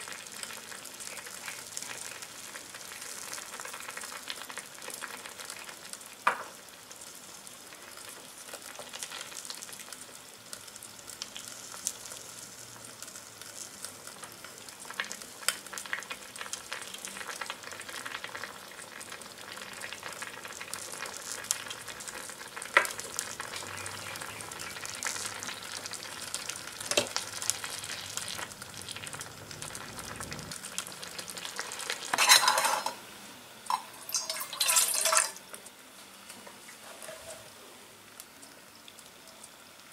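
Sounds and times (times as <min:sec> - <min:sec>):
soup sizzling and simmering: 0:00.0 - 0:39.9
cookware clattering: 0:32.1 - 0:33.0, 0:33.7 - 0:35.4.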